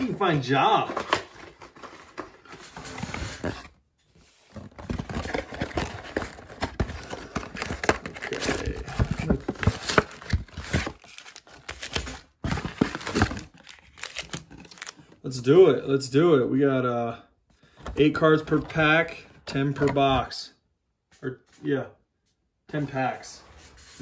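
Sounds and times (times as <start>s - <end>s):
cardboard rustling and scraping: 0.8s - 15.0s.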